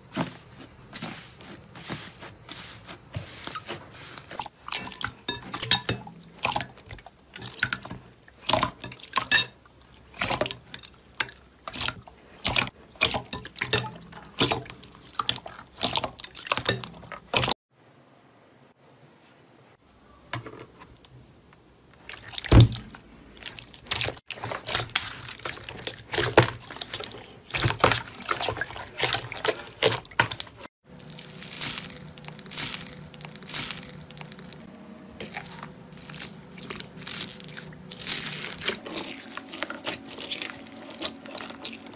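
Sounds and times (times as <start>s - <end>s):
slime squelching: 0.1s - 17.6s, 22.0s - 41.9s
foam beads crackling: 30.9s - 34.6s, 35.9s - 41.1s.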